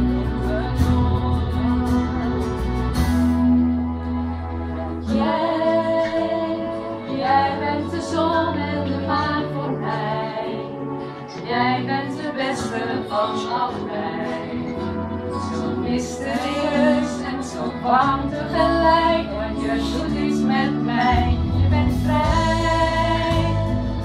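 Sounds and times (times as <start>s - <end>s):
musical backing: 0.0s - 24.0s
woman singing love song: 5.1s - 10.7s, 11.4s - 14.8s, 15.4s - 24.0s.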